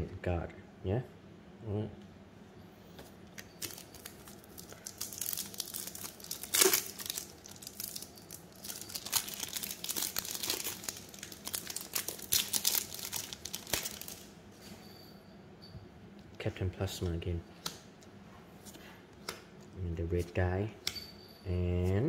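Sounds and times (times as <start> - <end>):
foil wrapper crinkling and tearing: 3.6 - 14.3.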